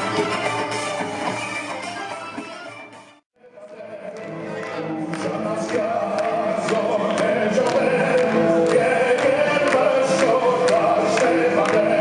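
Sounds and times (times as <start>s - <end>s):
choir singing over a beat: 3.6s - 12.0s.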